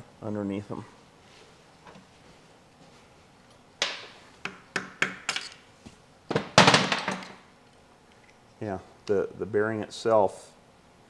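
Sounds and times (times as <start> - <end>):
metal tools clinking on workbench: 5.3 - 5.6.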